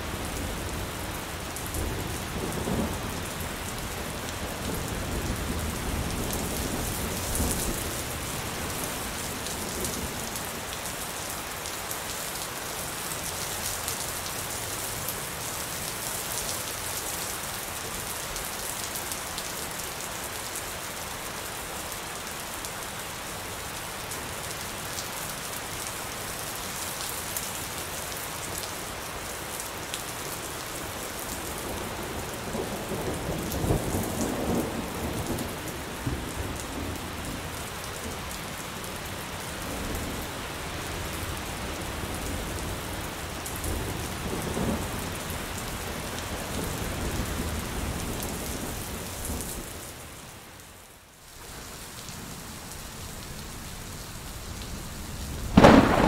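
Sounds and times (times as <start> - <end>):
steady rain falling: 0.0 - 56.0
thunder rumble: 54.5 - 56.0.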